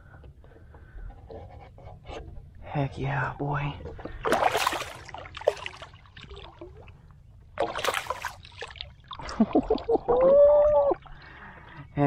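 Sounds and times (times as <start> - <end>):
water splashing: 4.1 - 11.2.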